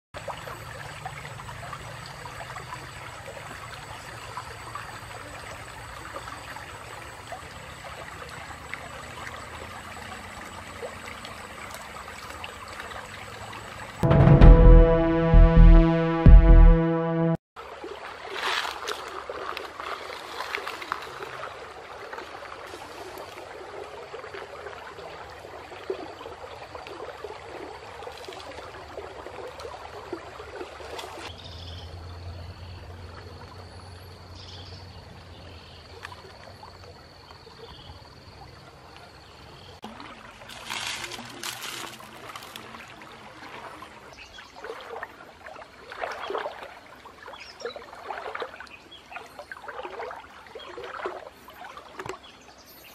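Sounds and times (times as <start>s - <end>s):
stream trickling and sloshing: 0.2s - 14.3s, 17.6s - 52.9s
water splashing: 39.8s - 52.3s.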